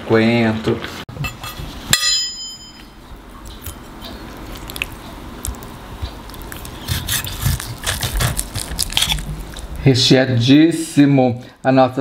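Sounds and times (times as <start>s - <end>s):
knife cutting through meat: 6.1s - 9.6s.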